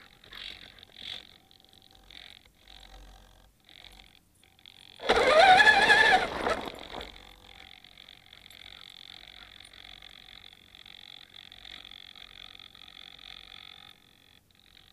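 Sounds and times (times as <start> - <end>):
electric motor whining: 0.0 - 14.9
faint short whirs: 4.9 - 7.3.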